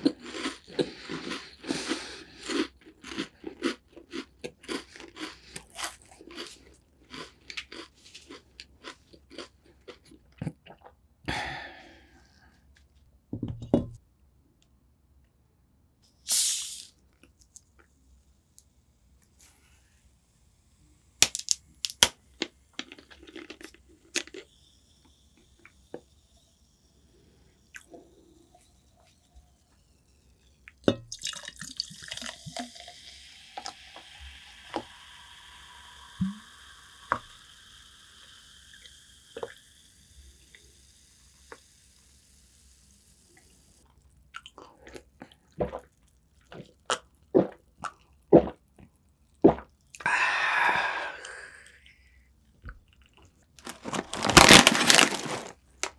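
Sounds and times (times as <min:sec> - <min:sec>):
person gulping: 0:00.0 - 0:12.4, 0:44.3 - 0:52.1
soda fizzing: 0:16.3 - 0:17.0, 0:22.2 - 0:43.8
soda pouring into glass: 0:27.8 - 0:42.6.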